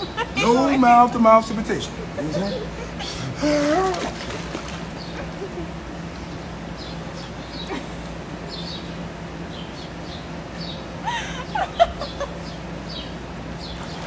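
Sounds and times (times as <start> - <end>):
woman laughing: 0.0 - 0.9, 5.2 - 5.8, 7.6 - 8.0, 11.0 - 12.4
steady low hum: 0.0 - 14.0.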